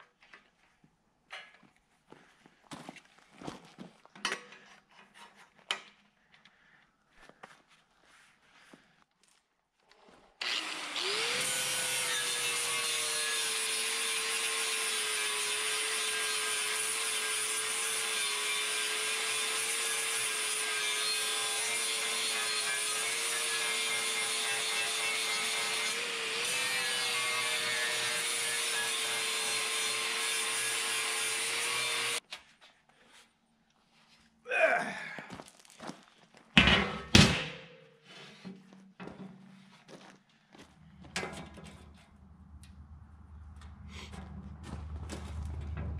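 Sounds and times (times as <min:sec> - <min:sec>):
angle grinder grinding steel: 0:10.4 - 0:32.2.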